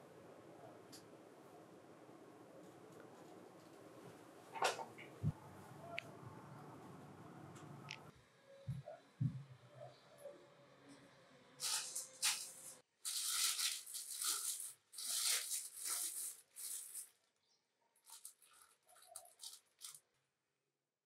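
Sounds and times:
plastic bag crinkling: 11.6 - 17.4, 18.0 - 20.1.

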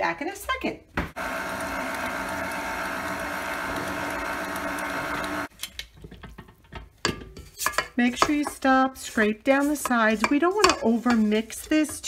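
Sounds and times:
electric stand mixer running: 1.2 - 5.5.

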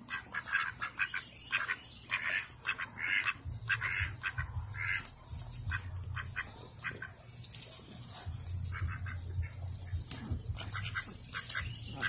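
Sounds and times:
ducks quacking softly: 0.0 - 12.0
low steady rumble: 2.4 - 12.0.

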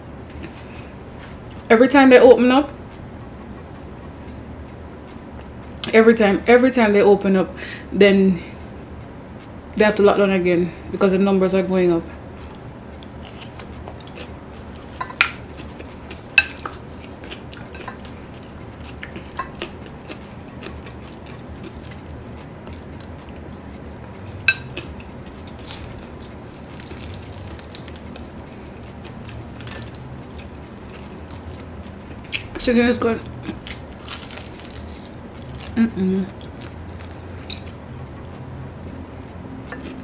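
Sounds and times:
low background hum: 0.0 - 40.0.

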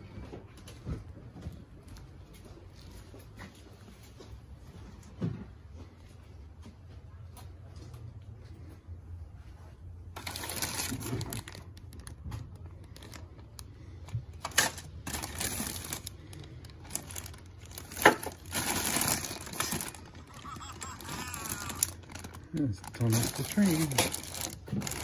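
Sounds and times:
plastic bags crinkling: 10.2 - 25.0.

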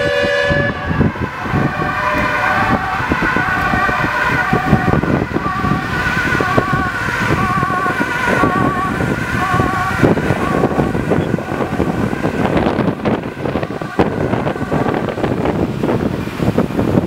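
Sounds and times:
emergency vehicle siren: 0.0 - 16.9
road noise: 0.0 - 17.0
wind buffeting microphone: 0.0 - 17.0.

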